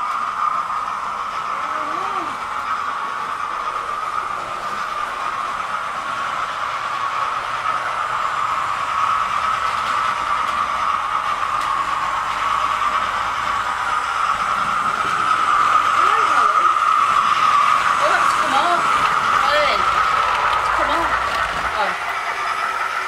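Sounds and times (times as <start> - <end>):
model trains whirring on track: 0.0 - 23.0.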